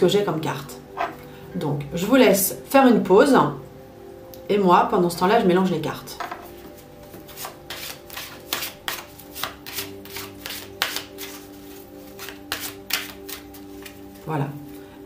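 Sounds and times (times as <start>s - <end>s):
soft background music: 0.0s - 15.0s
cards being shuffled: 6.7s - 14.3s.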